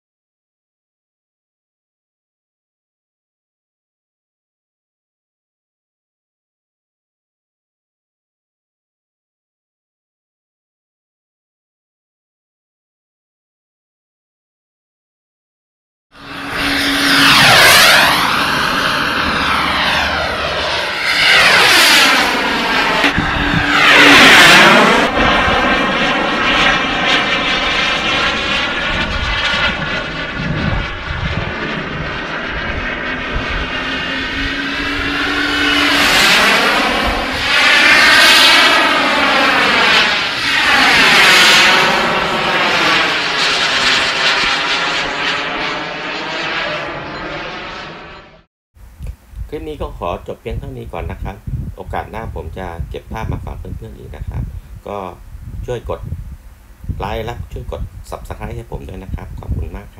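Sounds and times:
model airplane engine passing: 0:16.2 - 0:59.9.

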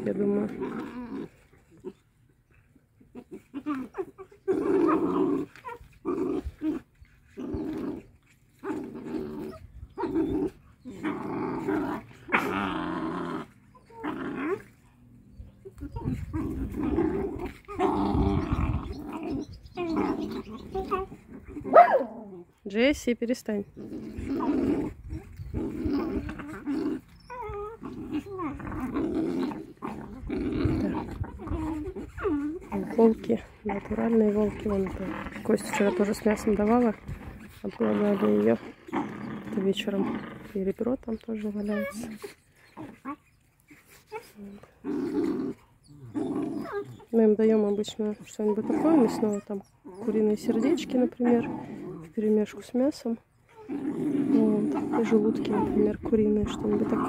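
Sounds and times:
wolf pups growling: 0:00.0 - 0:57.0
pups chewing bone: 0:23.6 - 0:57.0.

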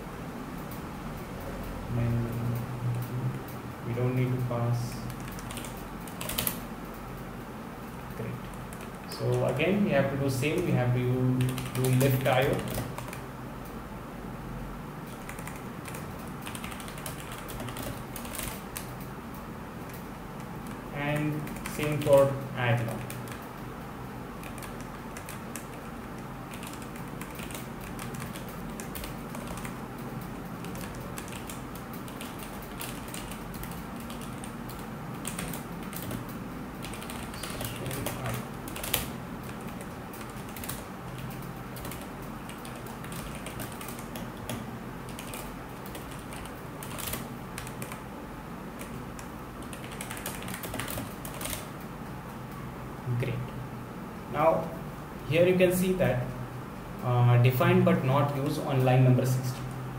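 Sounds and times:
steady low hum: 0:00.0 - 0:59.9
keyboard typing: 0:01.9 - 0:06.7, 0:08.2 - 0:09.6, 0:10.3 - 0:13.3, 0:15.0 - 0:19.1, 0:19.8 - 0:23.6, 0:24.4 - 0:48.1, 0:48.7 - 0:51.9.

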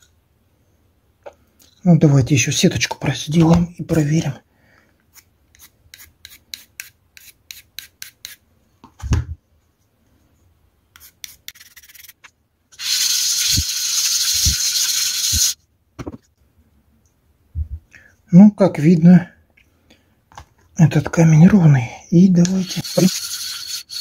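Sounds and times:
pencil scratching on stone: 0:05.1 - 0:08.4, 0:11.0 - 0:12.2, 0:22.6 - 0:24.0
stone rubbing on wet plate: 0:22.6 - 0:24.0.

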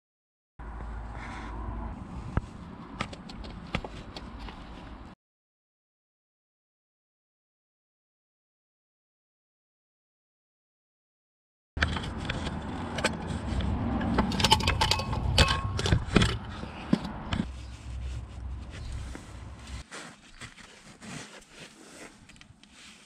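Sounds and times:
metal clinks and rattles: 0:13.9 - 0:17.0.

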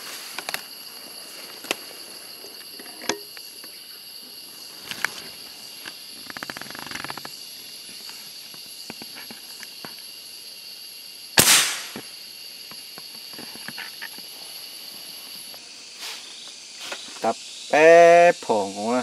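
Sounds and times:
high insect calls: 0:00.0 - 0:19.0
gunshot with echo: 0:11.4 - 0:12.0.

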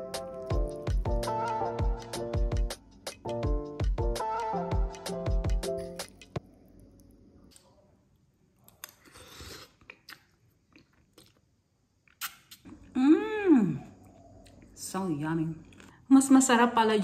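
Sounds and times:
background music: 0:00.0 - 0:06.4
quiet chewing: 0:08.6 - 0:12.9, 0:13.8 - 0:14.8, 0:15.6 - 0:16.0.

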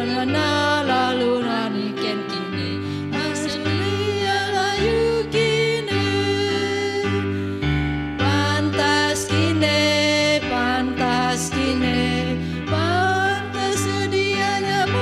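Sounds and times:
women singing a hymn: 0:00.0 - 0:07.3, 0:08.2 - 0:15.0
instrumental backing music: 0:00.0 - 0:15.0.

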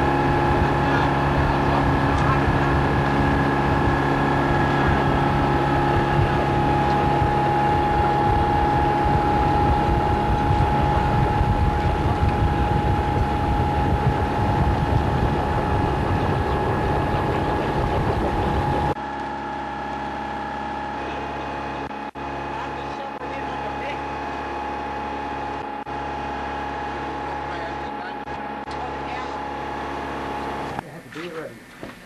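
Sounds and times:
wind and water noise: 0:00.0 - 0:19.2
high engine whine: 0:00.0 - 0:30.9
boat engine humming: 0:00.0 - 0:31.4.

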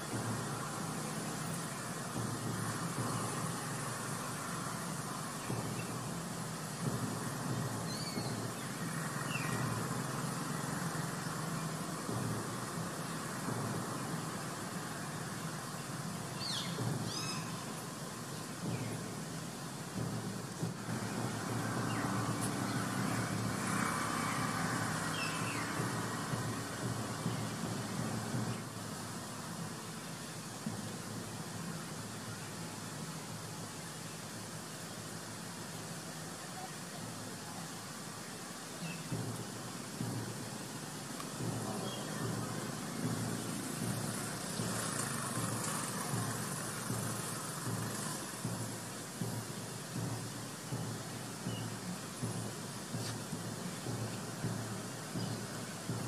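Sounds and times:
outdoor hiss and rumble: 0:00.0 - 0:56.0
vehicles passing: 0:00.0 - 0:56.0.

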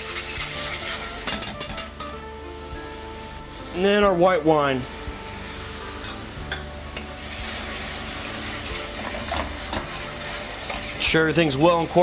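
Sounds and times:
sizzling in a pan: 0:00.0 - 0:12.0
wine pouring into pan: 0:07.0 - 0:12.0.

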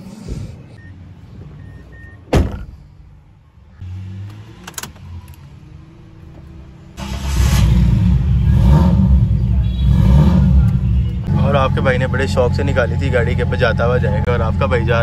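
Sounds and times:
car engine starting and running: 0:00.6 - 0:15.0
car door shutting: 0:02.2 - 0:02.8.

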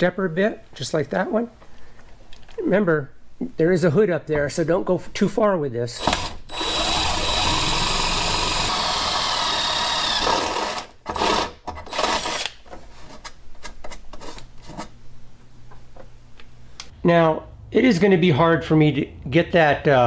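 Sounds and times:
drill whining through sheet metal: 0:06.0 - 0:12.6.

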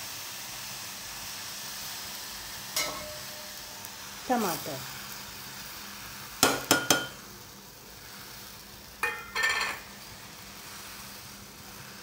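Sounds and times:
oil sizzling: 0:00.0 - 0:12.0
steel bowl tapping metal rim: 0:02.8 - 0:03.5, 0:06.4 - 0:07.2, 0:09.0 - 0:09.8.

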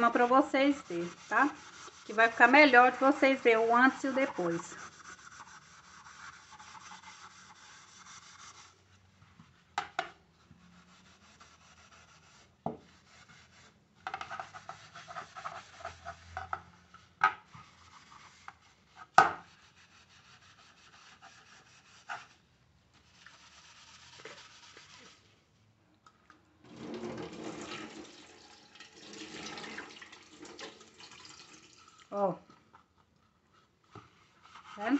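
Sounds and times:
sponge scrubbing metal lid: 0:00.0 - 0:08.7, 0:23.0 - 0:25.3, 0:34.1 - 0:34.9
tap water running: 0:26.6 - 0:32.2.

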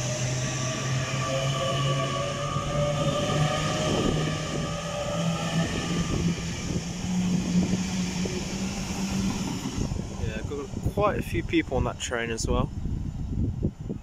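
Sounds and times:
train accelerating: 0:00.0 - 0:14.0.

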